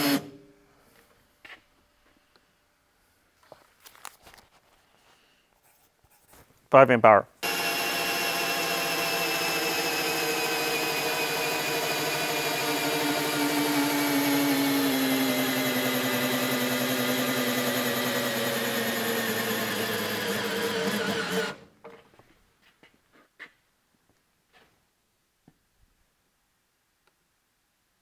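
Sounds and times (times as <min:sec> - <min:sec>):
drill motor whine: 0:00.0 - 0:00.3, 0:07.4 - 0:21.6.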